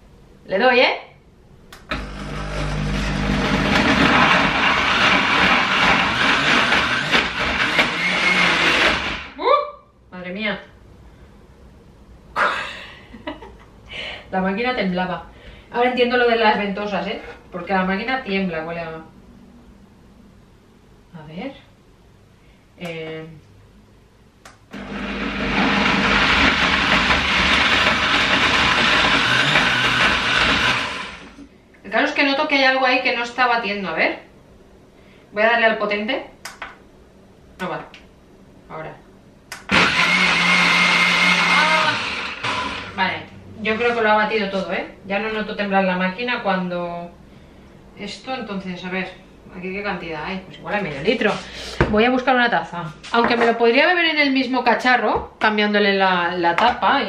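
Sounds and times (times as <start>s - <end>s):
blender motor running: 1.9s - 9.4s, 24.8s - 31.4s, 39.6s - 43.0s.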